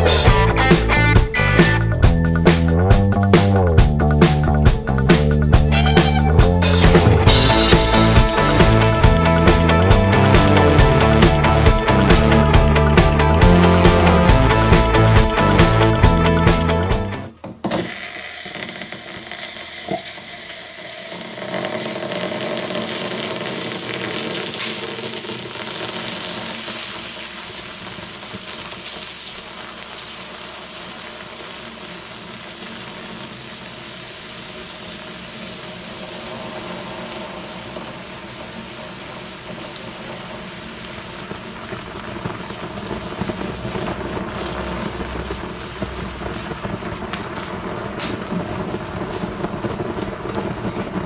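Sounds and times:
firecrackers fizzing and sizzling: 0.0s - 51.0s
scattered crackles: 18.5s - 51.0s
sharp crack: 22.9s - 26.6s, 41.5s - 51.0s.

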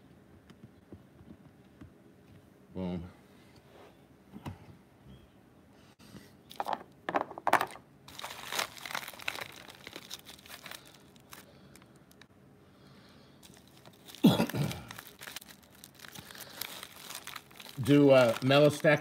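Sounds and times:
mailer tearing and crinkling: 8.1s - 12.2s, 13.4s - 19.0s.

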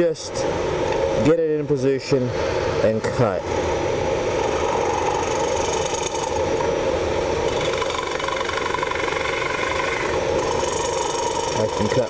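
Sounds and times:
wood lathe humming: 7.4s - 12.0s.

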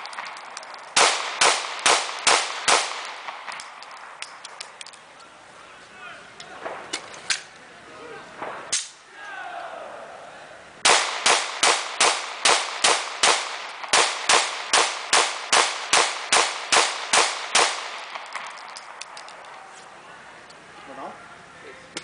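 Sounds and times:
pistol shots: 0.0s - 4.6s, 10.8s - 18.7s.

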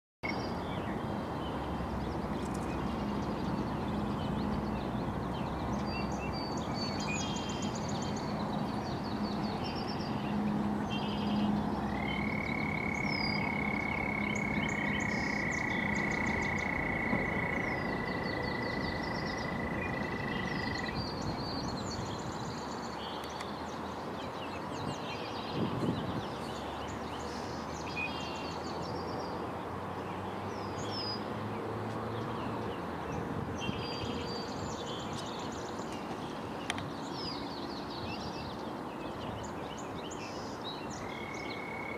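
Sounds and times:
bird chirps: 5.4s - 23.6s
frog trills: 11.8s - 21.0s.

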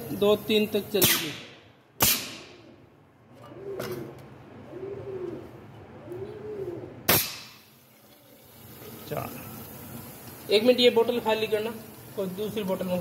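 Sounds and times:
pigeon cooing: 2.6s - 7.1s.

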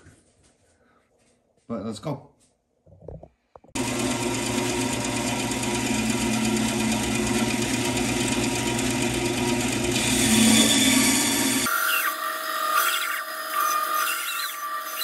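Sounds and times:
band saw cutting wood: 3.8s - 15.0s.

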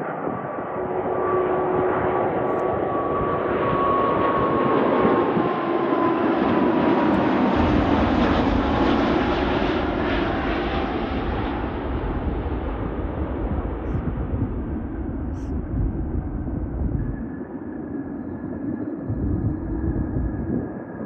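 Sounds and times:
jet airliner engines passing: 0.0s - 21.0s
deep rumble: 7.2s - 17.4s, 19.0s - 20.7s.

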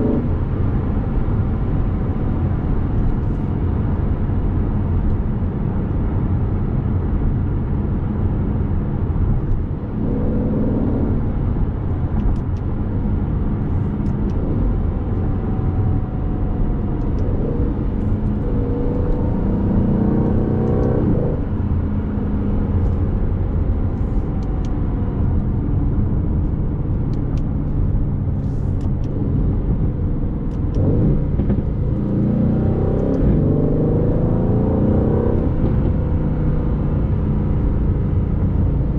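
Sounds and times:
low road rumble: 0.0s - 38.9s
car engine accelerating: 8.2s - 38.9s.

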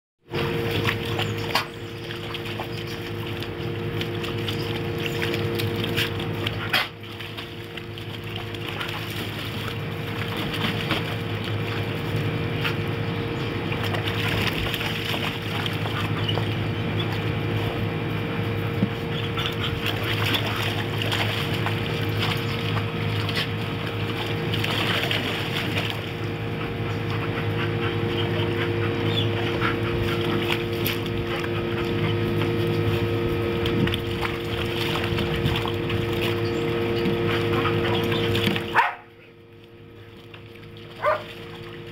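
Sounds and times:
dog splashing in water: 0.3s - 17.9s, 18.6s - 39.0s, 40.0s - 41.9s
steady hum: 0.3s - 41.9s.

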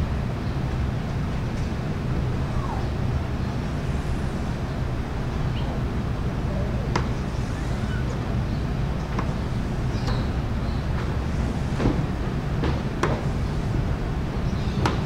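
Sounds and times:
low machine hum: 0.0s - 15.0s
faint short squeaks: 7.3s - 8.4s.

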